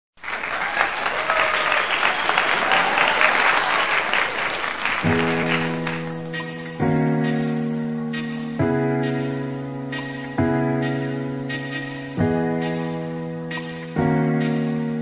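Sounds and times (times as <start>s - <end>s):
applause: 0.2s - 6.0s
music with sustained chords: 5.1s - 15.0s.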